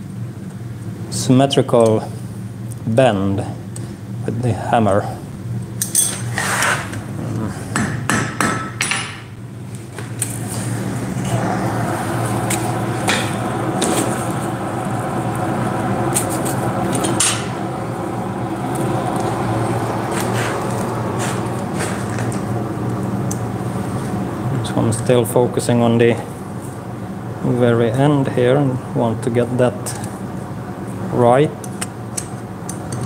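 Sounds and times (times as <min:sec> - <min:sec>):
forge blower hum: 0:00.0 - 0:33.0
fire rushing: 0:10.2 - 0:25.0.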